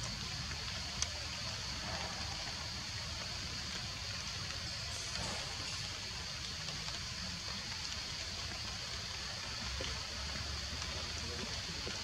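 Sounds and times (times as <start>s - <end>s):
faint ticks: 0.0s - 1.2s
forest background hiss: 0.0s - 12.0s.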